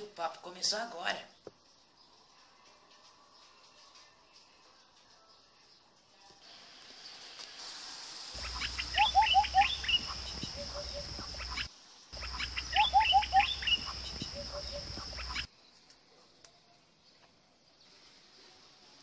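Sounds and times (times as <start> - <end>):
steady high hiss: 6.4 - 15.5
birds chirping: 8.4 - 18.0.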